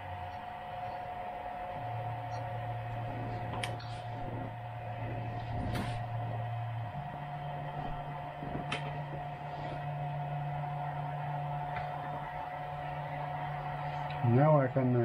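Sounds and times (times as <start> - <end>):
fan hum: 0.0 - 15.0
stepper motor whine: 0.0 - 15.0.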